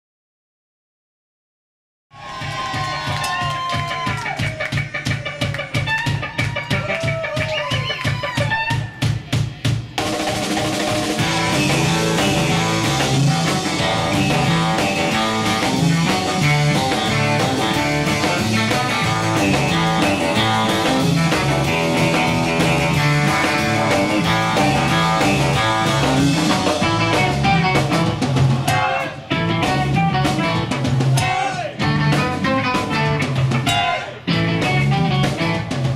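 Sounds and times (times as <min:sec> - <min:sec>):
drum beat: 0:02.2 - 0:35.9
surf rock band playing: 0:02.6 - 0:35.9.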